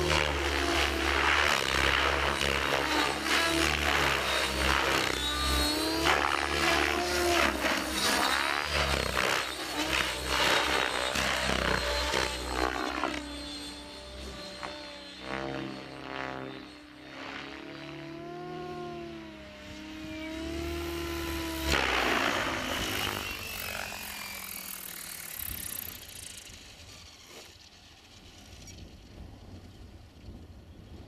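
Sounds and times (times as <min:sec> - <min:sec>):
rc helicopter whine: 0:00.0 - 0:31.0.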